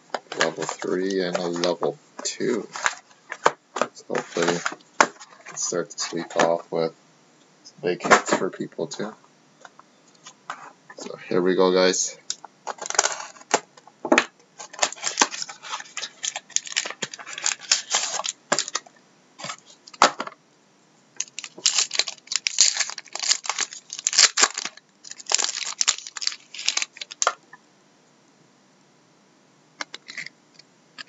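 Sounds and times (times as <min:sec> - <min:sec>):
wrappers crinkling and tearing: 0:00.3 - 0:01.8, 0:04.0 - 0:06.2, 0:14.6 - 0:19.6, 0:21.2 - 0:27.4
knife slitting card packs: 0:04.1 - 0:04.8, 0:14.6 - 0:18.8.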